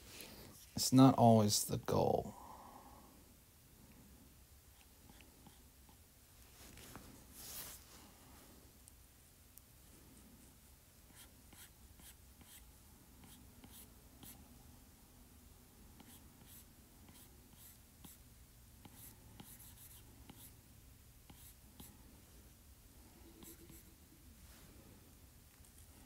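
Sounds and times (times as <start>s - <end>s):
stylus scratching on screen: 23.2s - 24.0s.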